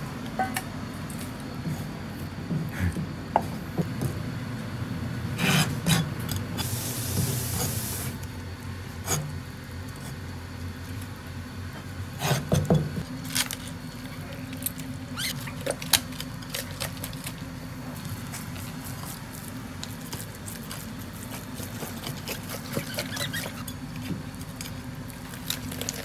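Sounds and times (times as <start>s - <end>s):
knife scraping on cutting board: 5.4s - 6.1s.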